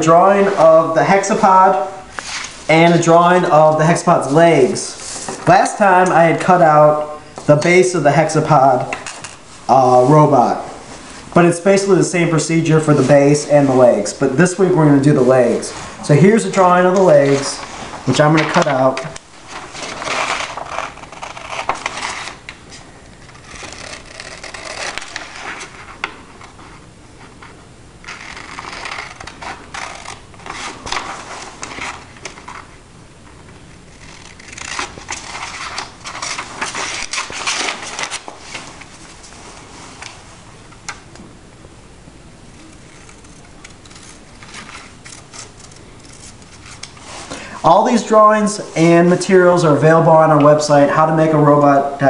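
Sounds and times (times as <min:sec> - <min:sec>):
paper crackling: 0:15.1 - 0:32.8, 0:33.4 - 0:40.2, 0:42.6 - 0:48.6
scissors cutting paper: 0:19.8 - 0:22.4, 0:23.2 - 0:25.8, 0:28.0 - 0:32.7, 0:33.9 - 0:38.3, 0:42.6 - 0:47.0.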